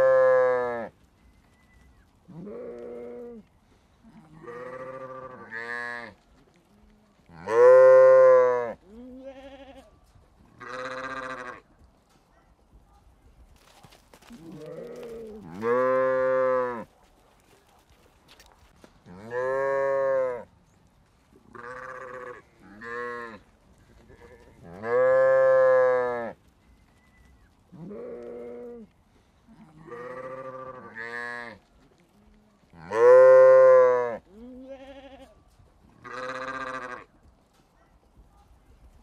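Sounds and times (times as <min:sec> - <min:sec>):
sheep bleating: 0:02.3 - 0:03.4, 0:04.1 - 0:06.2, 0:07.3 - 0:11.6, 0:14.3 - 0:16.9, 0:21.5 - 0:26.4, 0:29.6 - 0:31.6, 0:32.8 - 0:35.4, 0:36.0 - 0:37.1.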